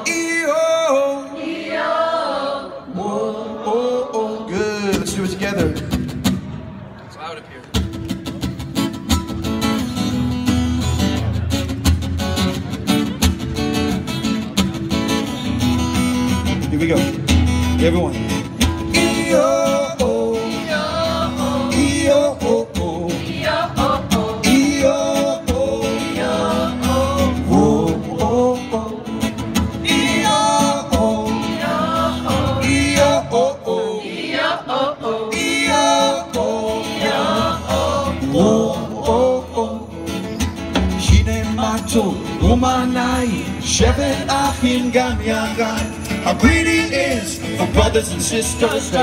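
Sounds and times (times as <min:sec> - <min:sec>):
other voices singing: 0:00.0 - 0:04.8, 0:18.9 - 0:40.1
strummed acoustic guitar: 0:07.7 - 0:49.0.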